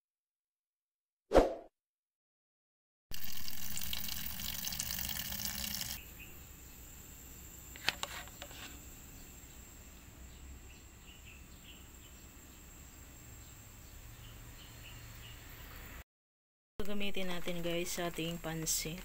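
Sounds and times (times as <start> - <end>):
tap water running: 3.1 - 6.0.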